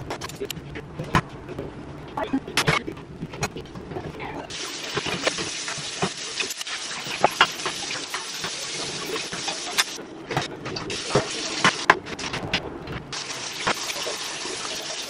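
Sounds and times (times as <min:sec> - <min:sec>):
tap water running: 0:04.5 - 0:10.0, 0:10.9 - 0:11.8, 0:13.1 - 0:15.0.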